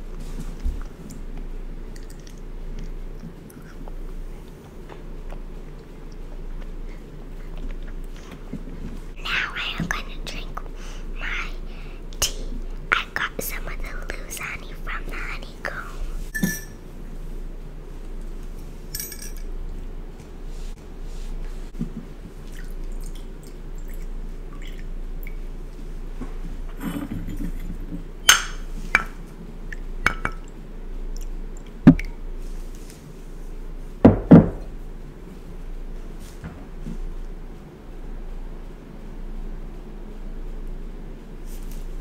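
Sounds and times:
porcelain tableware clinking: 0:16.4 - 0:16.8.

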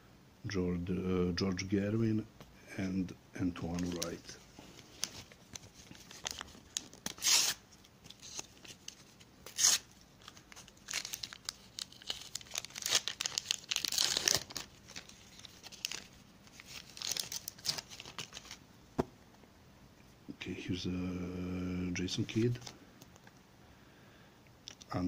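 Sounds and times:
paper wrapper tearing and crinkling: 0:03.6 - 0:18.6.

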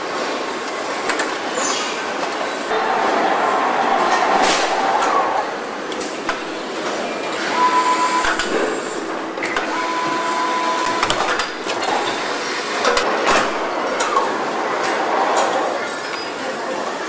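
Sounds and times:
machinery din: 0:02.8 - 0:14.4.

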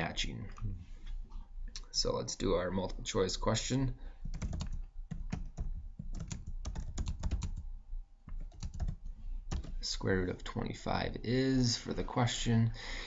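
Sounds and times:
typing on computer keyboard: 0:04.3 - 0:07.6, 0:08.3 - 0:09.8.

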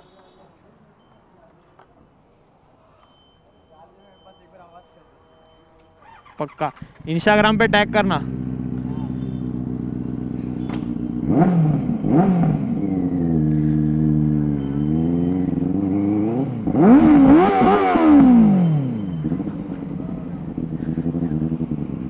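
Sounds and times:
motorcycle engine revving: 0:06.0 - 0:22.0.

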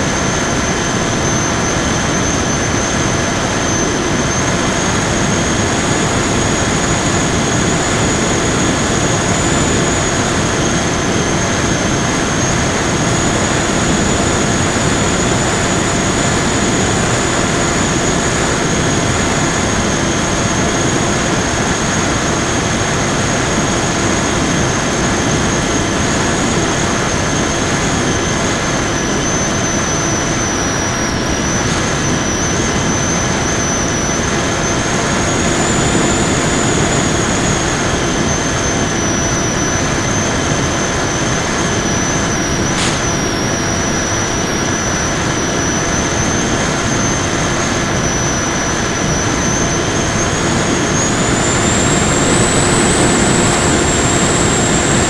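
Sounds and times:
electric motor and propeller whine: 0:00.0 - 0:55.0
rushing air: 0:31.2 - 0:39.0, 0:41.4 - 0:44.8, 0:49.9 - 0:55.0
brief click: 0:42.7 - 0:43.3.

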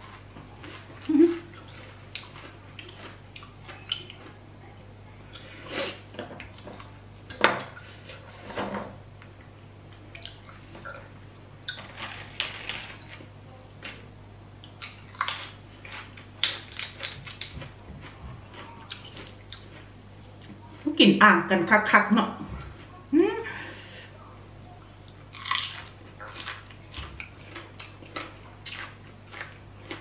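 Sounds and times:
crunchy chewing of cabbage: 0:00.0 - 0:04.4, 0:11.6 - 0:14.1, 0:14.7 - 0:20.9, 0:25.0 - 0:30.0
low steady hum: 0:00.0 - 0:30.0.

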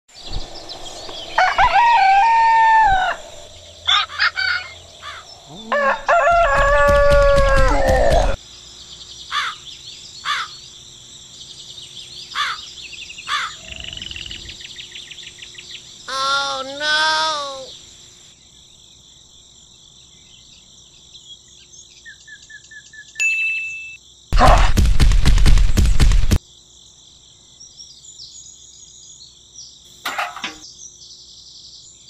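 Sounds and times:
rooster crowing: 0:01.3 - 0:08.4.

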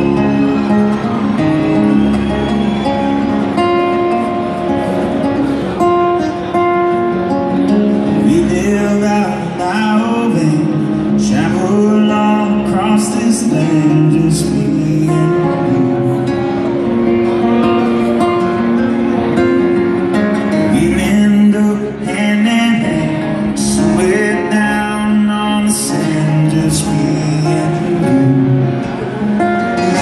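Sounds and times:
live band playing: 0:00.0 - 0:30.0
strummed acoustic guitar: 0:00.0 - 0:30.0
man singing: 0:08.1 - 0:16.7, 0:20.5 - 0:30.0.

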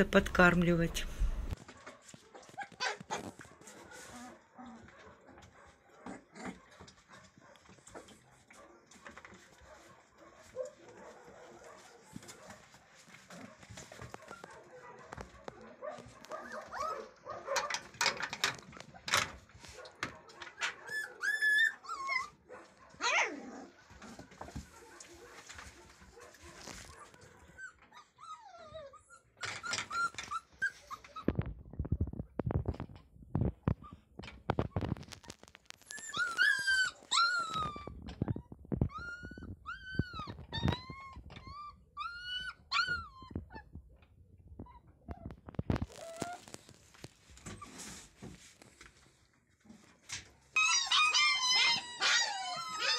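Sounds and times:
puppies whining and yipping: 0:02.3 - 0:09.9, 0:12.2 - 0:15.2, 0:16.2 - 0:18.2, 0:20.6 - 0:25.3, 0:26.2 - 0:31.6, 0:33.8 - 0:43.8, 0:44.6 - 0:46.7, 0:47.4 - 0:48.2, 0:50.5 - 0:52.9.

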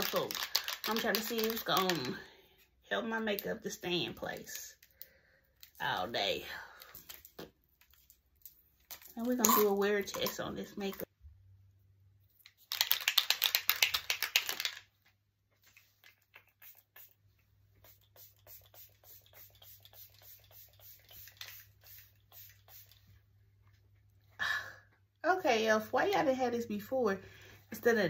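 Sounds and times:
setting spray hissing: 0:17.8 - 0:23.1.

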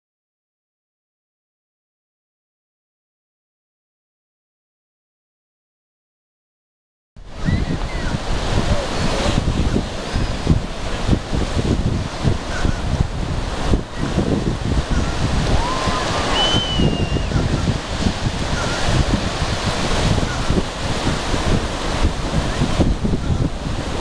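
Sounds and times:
ocean surf: 0:07.2 - 0:24.0
wind buffeting microphone: 0:07.2 - 0:24.0.

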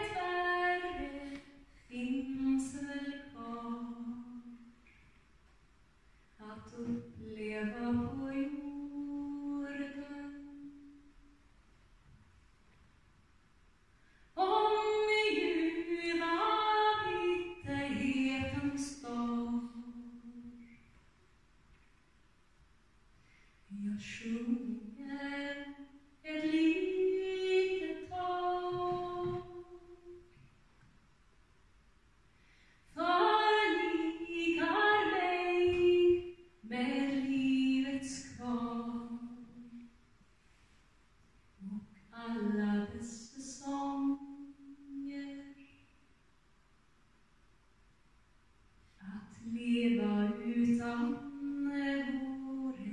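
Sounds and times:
woman singing unaccompanied: 0:00.0 - 0:04.7, 0:06.4 - 0:11.0, 0:14.4 - 0:20.6, 0:23.7 - 0:30.3, 0:33.0 - 0:39.8, 0:41.6 - 0:45.7, 0:49.0 - 0:52.9.

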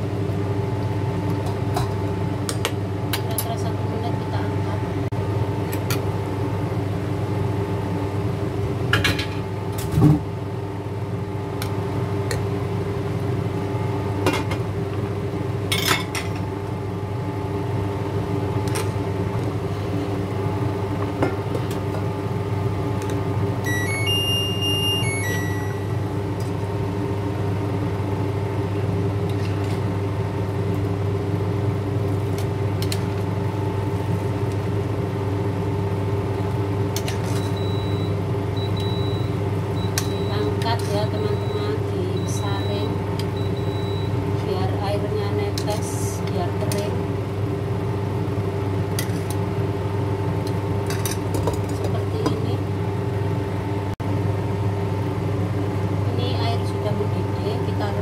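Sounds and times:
cooktop hum: 0:00.0 - 0:58.0
electronic beeps: 0:23.7 - 0:25.9.

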